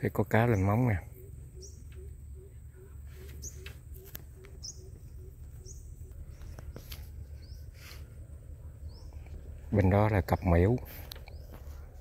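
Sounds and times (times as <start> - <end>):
high bird chirp: 0.2 - 12.0
bird hooting: 0.6 - 9.6.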